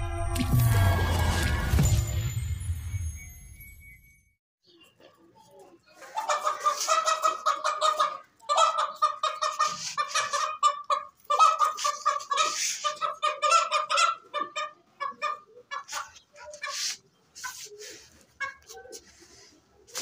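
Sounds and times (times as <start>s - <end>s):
partridge clucking calls: 4.7s - 19.1s.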